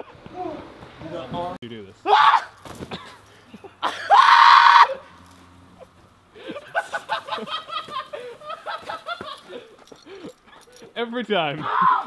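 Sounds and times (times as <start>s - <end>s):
person yelling: 2.0s - 2.5s, 11.6s - 12.0s
long loud scream: 3.8s - 5.1s, 11.6s - 12.0s
people laughing: 6.4s - 10.3s.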